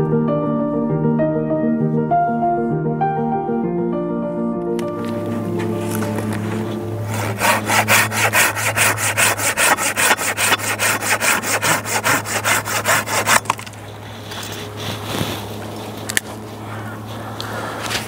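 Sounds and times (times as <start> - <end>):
hand saw cutting branch: 5.2 - 18.0.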